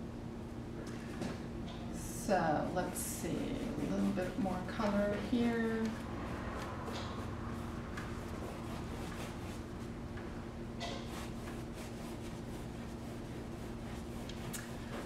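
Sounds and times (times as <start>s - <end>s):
steady low hum: 0.0s - 15.0s
paintbrush strokes on canvas: 2.4s - 10.0s, 11.0s - 15.0s.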